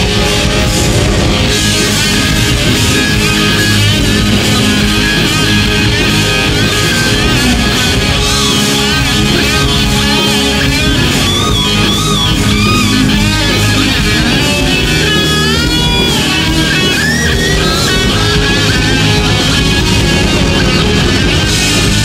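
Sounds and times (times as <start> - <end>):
lead guitar bending high notes: 0.0 - 22.0
rock band playing live: 0.0 - 22.0.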